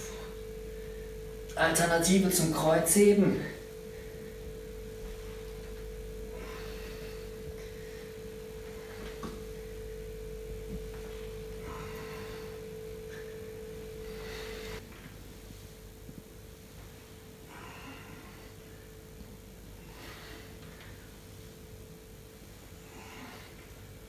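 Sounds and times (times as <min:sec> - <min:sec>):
electronic tone: 0:00.0 - 0:14.8.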